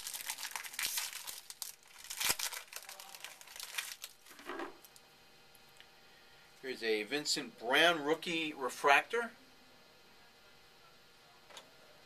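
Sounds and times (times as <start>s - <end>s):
plastic wrapper crinkling and tearing: 0.0s - 5.0s.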